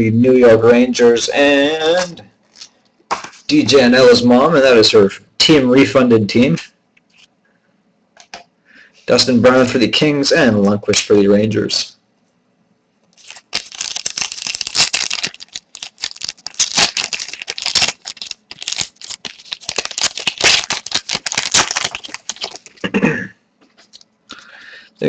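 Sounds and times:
foil wrapper crinkling and tearing: 13.1 - 22.8, 23.8 - 24.5.

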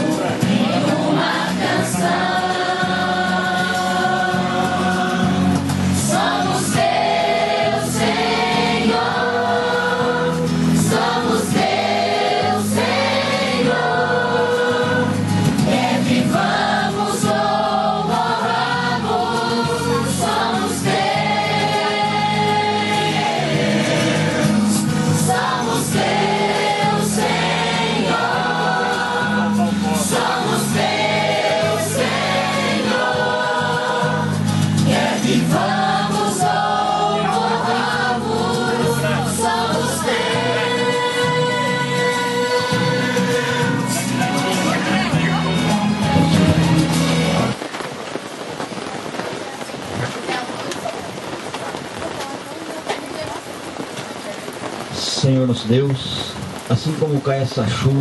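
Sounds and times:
group singing a christian song: 0.0 - 47.6
woman singing into a microphone: 35.4 - 43.9.

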